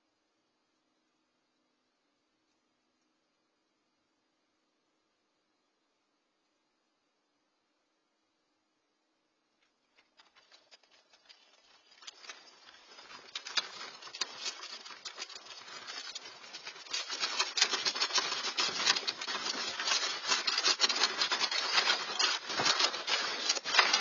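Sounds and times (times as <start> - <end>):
rattling and creaking objects: 10.0 - 24.0.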